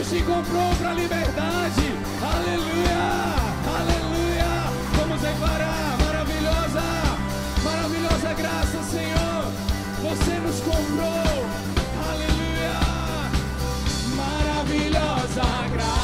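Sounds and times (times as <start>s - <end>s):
drum kit beat: 0.0s - 16.0s
electric guitars: 0.0s - 16.0s
group of singers: 2.2s - 7.1s, 14.1s - 16.0s.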